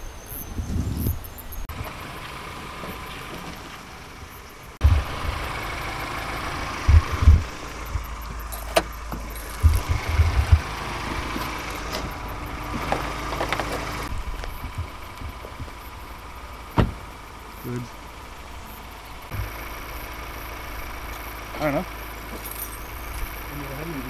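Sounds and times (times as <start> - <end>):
car engine idling: 1.3 - 24.0
low thumps: 6.6 - 17.2.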